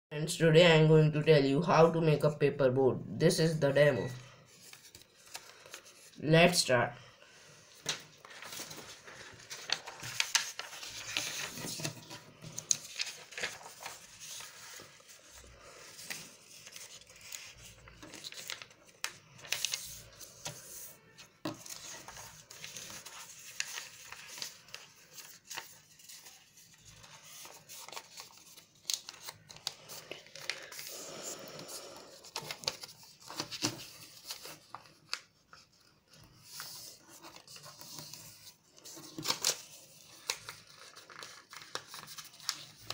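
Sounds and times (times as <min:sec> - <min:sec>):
paper rustling and crackling: 0:04.5 - 0:06.2, 0:07.7 - 0:42.9.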